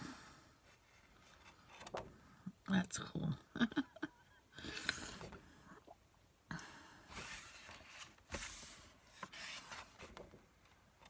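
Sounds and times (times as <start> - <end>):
book pages turning: 7.2 - 10.4.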